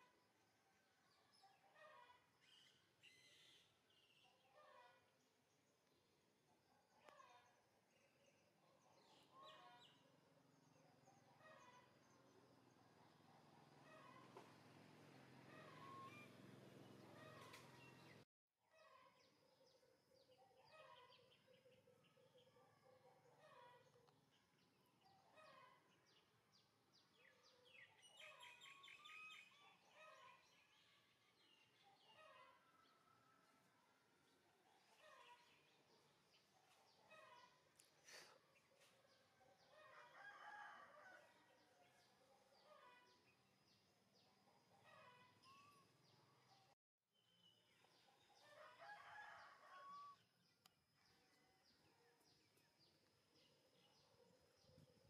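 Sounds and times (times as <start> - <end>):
small birds chirping: 14.0 - 18.3
faint rooster crow: 15.5 - 16.3, 39.6 - 43.2, 48.4 - 50.3.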